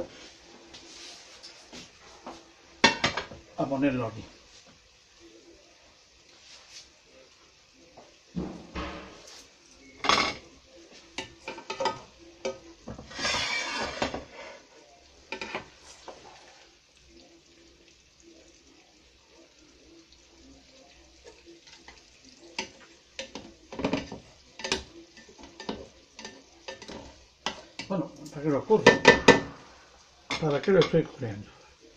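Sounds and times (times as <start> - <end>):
spoon scraping a frying pan: 8.9 - 16.8, 21.2 - 28.0.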